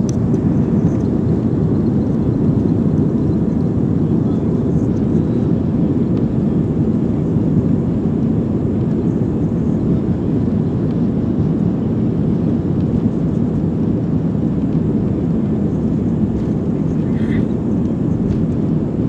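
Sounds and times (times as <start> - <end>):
airliner cabin jet engine rumble: 0.0 - 19.0.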